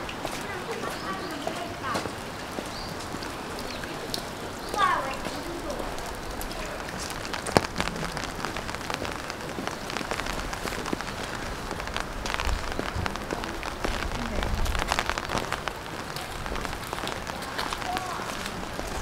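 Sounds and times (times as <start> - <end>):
rain pattering: 0.0 - 19.0
low rumble: 9.8 - 17.0.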